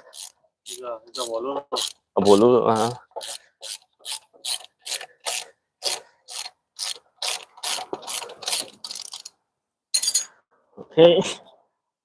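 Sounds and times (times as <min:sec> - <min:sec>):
ratchet wrench clicking: 0:00.1 - 0:09.3.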